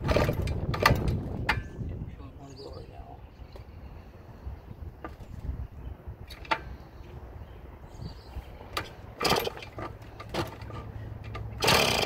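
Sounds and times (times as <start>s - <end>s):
two-stroke engine running raggedly: 11.6s - 12.0s.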